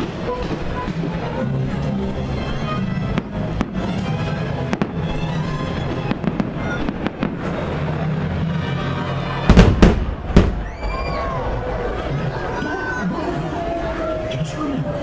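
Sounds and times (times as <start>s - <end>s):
music: 0.0s - 10.6s
fireworks pops and bangs: 3.2s - 7.7s, 9.5s - 10.6s.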